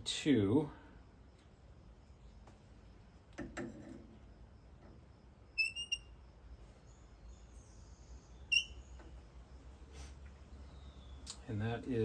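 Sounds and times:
micrometer knocks and clicks: 0:03.3 - 0:04.1
high-pitched squeaks: 0:05.6 - 0:06.1.

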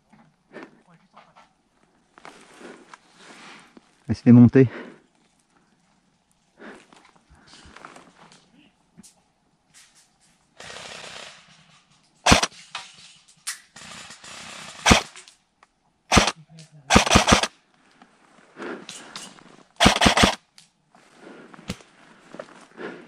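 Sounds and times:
airsoft guns firing: 0:10.6 - 0:11.7, 0:12.3 - 0:12.7, 0:13.5 - 0:15.3, 0:16.1 - 0:17.5, 0:19.8 - 0:20.4.

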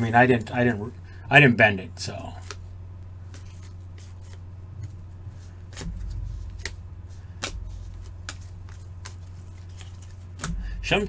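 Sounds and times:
steady low hum: 0:00.0 - 0:11.0
trading cards clicking: 0:05.7 - 0:06.8, 0:07.4 - 0:10.6.

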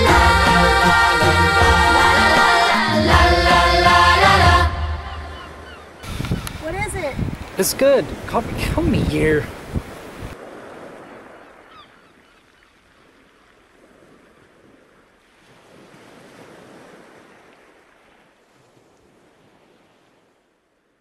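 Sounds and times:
sea surf: 0:00.0 - 0:12.3, 0:13.0 - 0:20.4
wind: 0:04.2 - 0:21.0.

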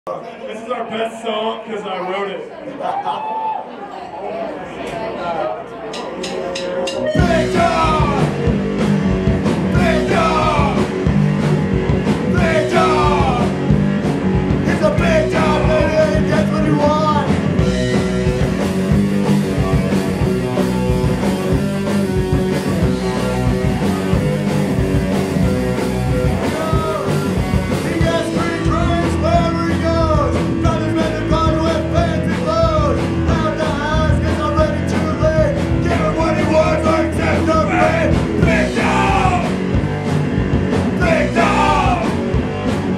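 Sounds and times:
drums: 0:05.8 - 0:42.9
bass: 0:06.2 - 0:42.9
distorted electric guitars: 0:06.3 - 0:42.9
person singing: 0:06.9 - 0:08.4, 0:09.7 - 0:10.9, 0:12.2 - 0:13.6, 0:14.6 - 0:17.4.

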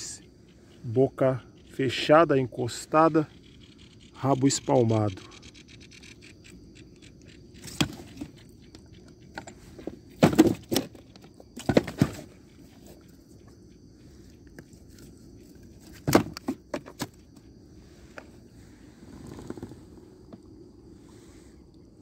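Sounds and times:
thumps and clatters on kayak deck: 0:07.6 - 0:13.0, 0:15.8 - 0:17.5.

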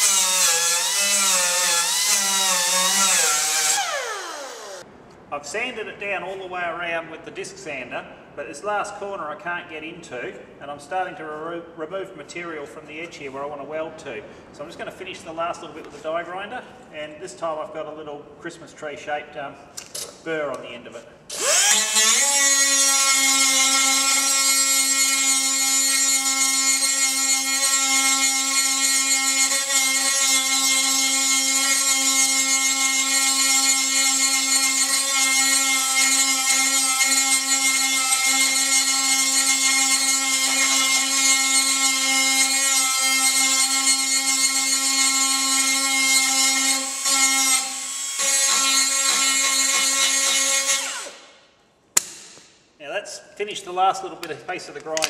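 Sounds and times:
die grinder grinding steel: 0:00.0 - 0:04.8, 0:21.3 - 0:51.2.

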